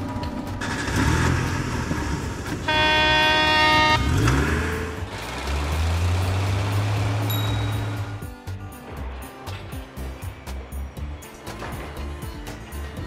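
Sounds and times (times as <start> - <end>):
truck engine rumbling: 0.0 - 13.0
truck horn honk: 0.6 - 5.4.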